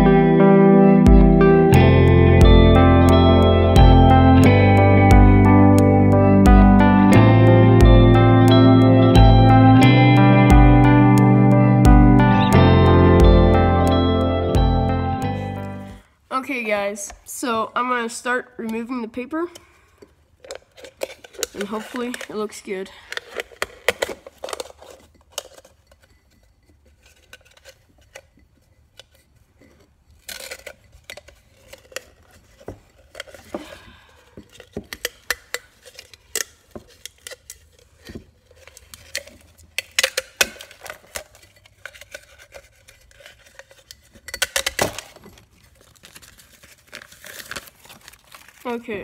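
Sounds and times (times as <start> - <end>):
paper rustling and crinkling: 20.4 - 49.0.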